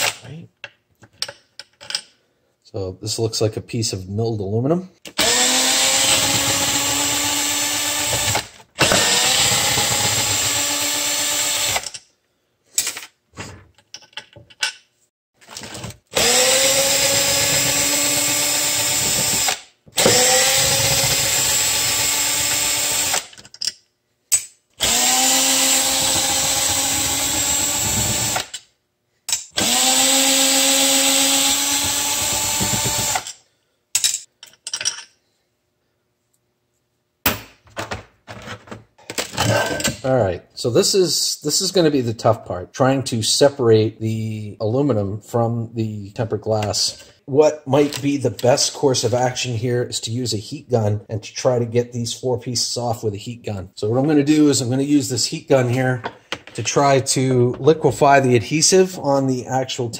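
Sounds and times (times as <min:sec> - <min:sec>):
cordless drill motor whining: 0:05.2 - 0:11.8, 0:16.1 - 0:23.2, 0:24.8 - 0:28.5, 0:29.6 - 0:33.3.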